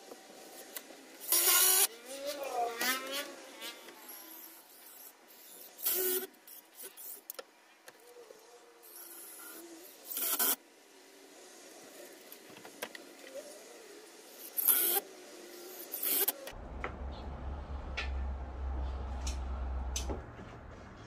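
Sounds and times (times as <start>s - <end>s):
cordless drill driving screws: 14.4s - 15.0s.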